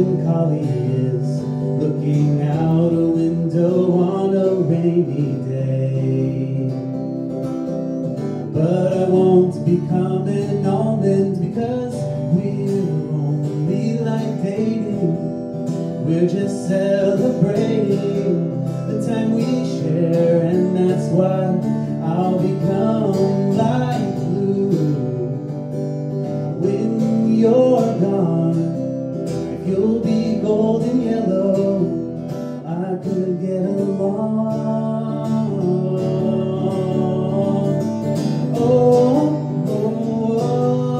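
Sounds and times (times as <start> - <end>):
man singing: 0.0 - 40.9
strummed acoustic guitar: 0.0 - 40.9.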